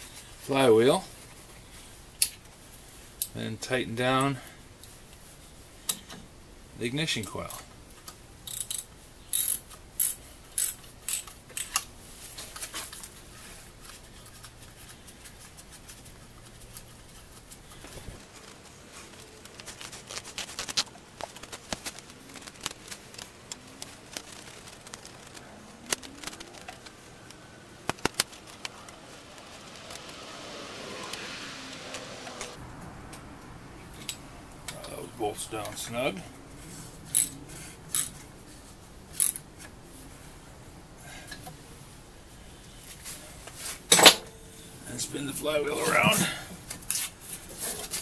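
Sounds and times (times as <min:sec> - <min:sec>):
socket wrench ratcheting: 0:08.5 - 0:11.8.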